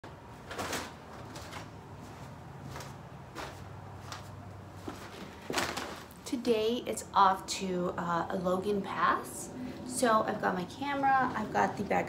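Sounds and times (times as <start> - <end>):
low room hum: 0.0 - 12.0
rustles and light knocks: 0.4 - 6.2.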